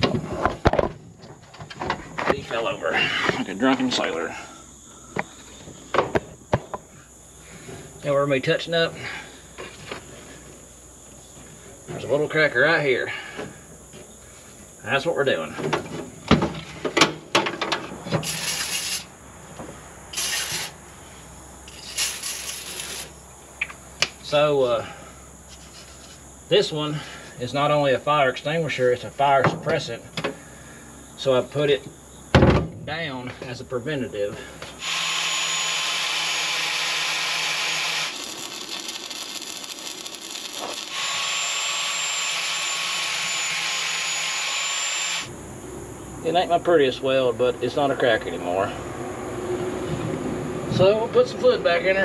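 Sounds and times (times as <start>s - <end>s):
angle grinder sanding metal: 18.2s - 19.1s, 20.1s - 20.8s, 21.7s - 23.1s, 34.8s - 45.3s.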